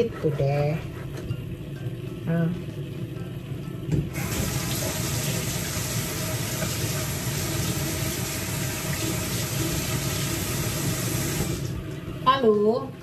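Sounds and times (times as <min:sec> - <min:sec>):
tap water splashing into sink: 0:03.9 - 0:12.0.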